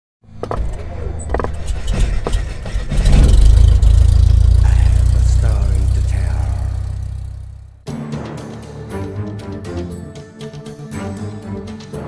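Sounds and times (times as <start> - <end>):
deep low rumble: 1.5 - 7.8
sharp cinematic hits: 2.1 - 7.9.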